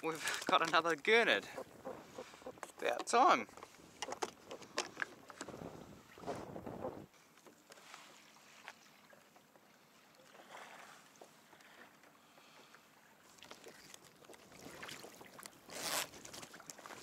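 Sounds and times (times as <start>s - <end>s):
water lapping against kayak hull: 0.0s - 17.0s
wind on microphone: 1.6s - 2.7s, 3.8s - 7.1s.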